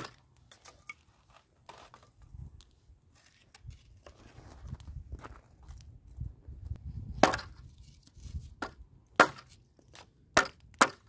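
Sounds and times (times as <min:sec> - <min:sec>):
firewood chopping knocks: 0:07.2 - 0:07.6, 0:08.6 - 0:09.5.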